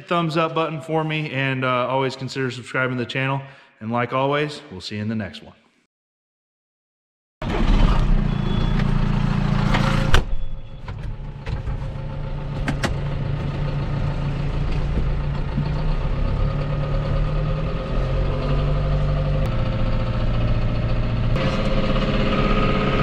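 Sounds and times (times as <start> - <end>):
tractor engine running: 7.4 - 23.0.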